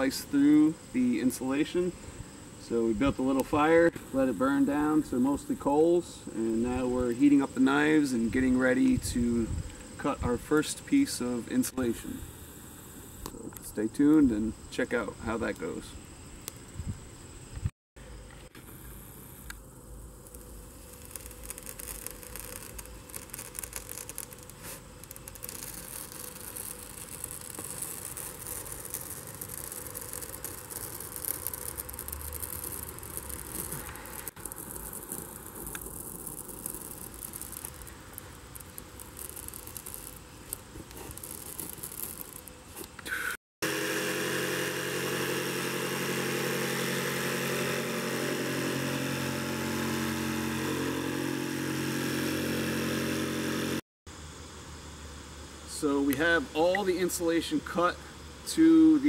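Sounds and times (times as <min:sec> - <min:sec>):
jigsaw sawing foam board: 0:43.6 - 0:53.8.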